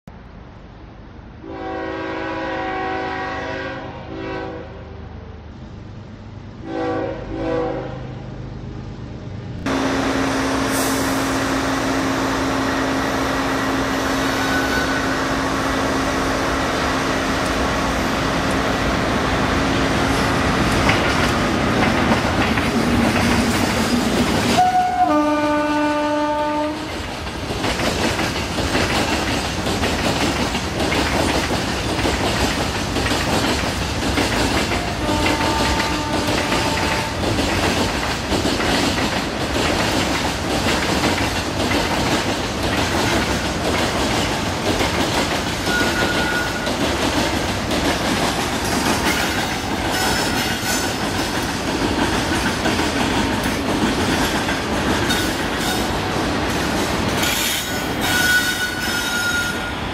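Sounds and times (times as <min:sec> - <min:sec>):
locomotive horn blasts: 0:01.4 - 0:05.0, 0:06.6 - 0:08.1, 0:14.3 - 0:15.4, 0:24.6 - 0:26.9, 0:34.8 - 0:37.3, 0:45.7 - 0:46.7
train wagons rumbling and clattering: 0:05.4 - 0:59.9.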